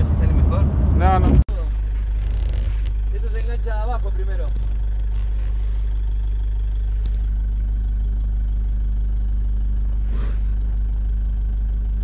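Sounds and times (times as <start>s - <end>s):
truck engine idling: 0.0s - 12.0s
brief rustle: 1.6s - 3.2s, 4.4s - 6.2s.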